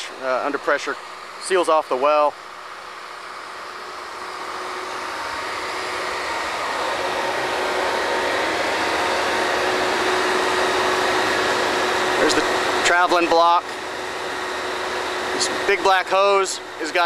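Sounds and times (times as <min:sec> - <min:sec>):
drilling rig machinery hum: 0:00.0 - 0:17.0.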